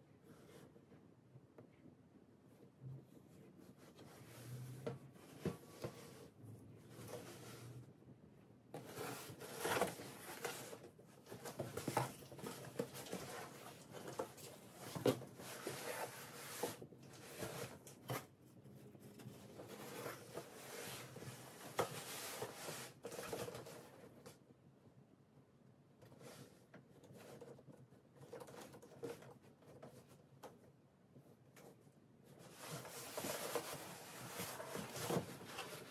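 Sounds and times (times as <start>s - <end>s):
cardboard boxes scraping and rustling: 8.8s - 18.4s, 19.1s - 23.9s, 32.4s - 35.9s.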